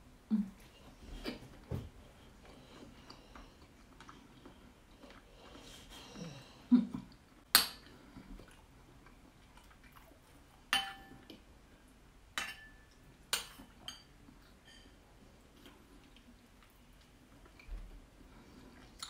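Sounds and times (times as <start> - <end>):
spoon clinking ceramic bowl: 10.7 - 11.3, 12.4 - 15.0.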